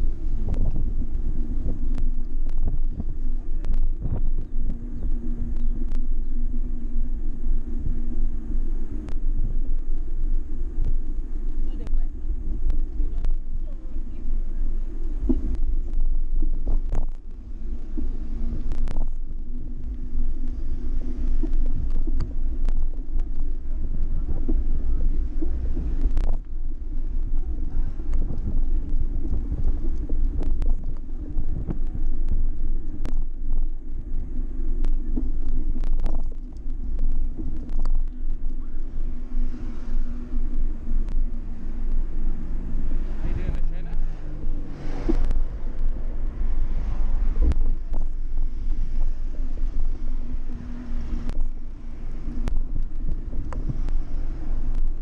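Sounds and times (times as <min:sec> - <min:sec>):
road rumble: 0:00.0 - 0:55.0
wind buffeting: 0:00.0 - 0:55.0.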